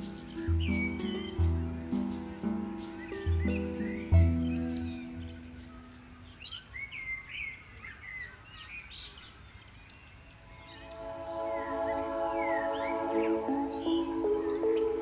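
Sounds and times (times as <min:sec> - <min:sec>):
music: 0:00.0 - 0:06.5, 0:10.6 - 0:15.0
small birds chirping: 0:00.0 - 0:15.0.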